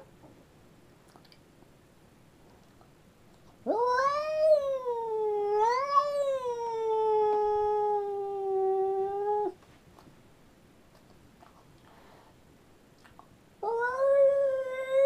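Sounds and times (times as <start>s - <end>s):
cat yowling: 3.7s - 9.6s, 13.6s - 15.0s.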